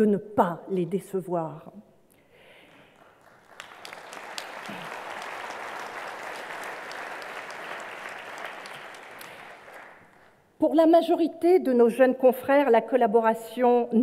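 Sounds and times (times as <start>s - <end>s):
audience applauding: 2.7s - 10.4s.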